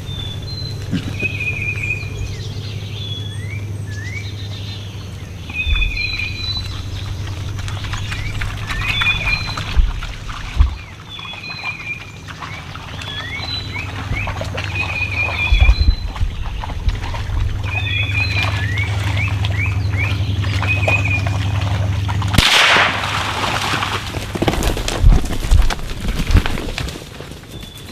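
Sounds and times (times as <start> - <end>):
low steady hum: 0.0 - 27.9
animals splashing through water: 5.4 - 27.4
bird singing whistled phrases: 5.5 - 6.9, 8.0 - 9.8, 10.8 - 16.6, 17.6 - 21.6
rifle shot: 22.4 - 23.6.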